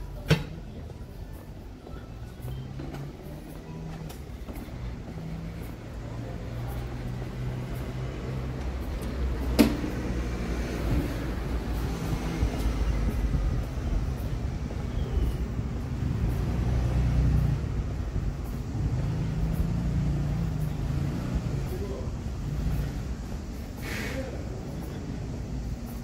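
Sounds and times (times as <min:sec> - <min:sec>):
traffic rumble: 0:00.0 - 0:26.0.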